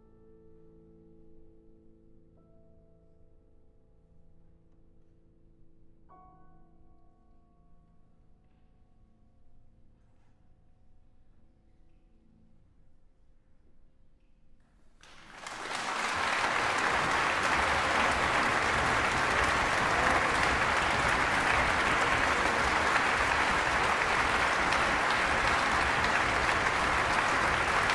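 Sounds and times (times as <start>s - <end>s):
audience applause: 15.0s - 27.9s.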